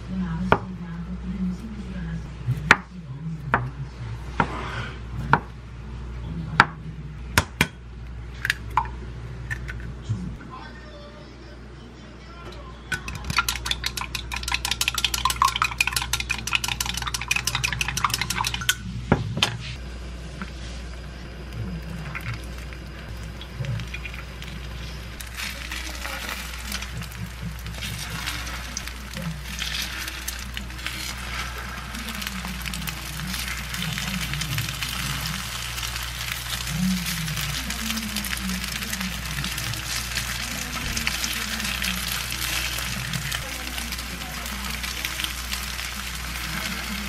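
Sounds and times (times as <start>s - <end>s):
chopsticks beating egg in glass: 12.9s - 18.8s
food sizzling in frying pan: 13.2s - 18.8s, 20.6s - 47.0s.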